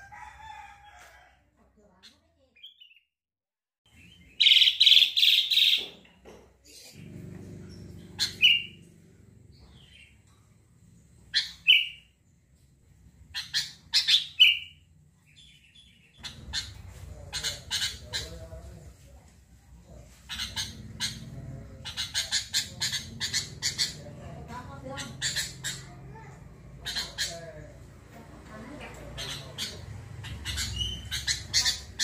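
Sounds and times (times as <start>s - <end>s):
bird calling in bright phrases: 3.9s - 10.4s, 11.2s - 12.2s, 13.3s - 18.6s, 20.0s - 28.0s, 28.6s - 32.0s.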